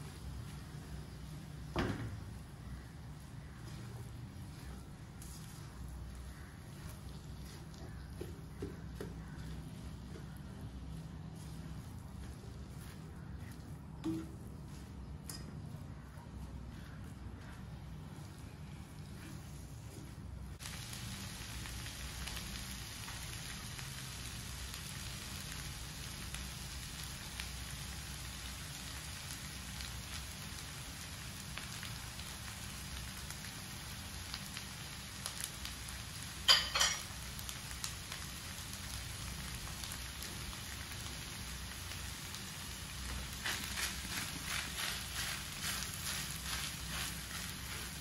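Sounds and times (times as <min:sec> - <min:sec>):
fried rice sizzling in a wok: 0:00.0 - 0:13.4, 0:16.8 - 0:48.0
spatula stirring and scraping: 0:03.2 - 0:13.9, 0:43.1 - 0:48.0.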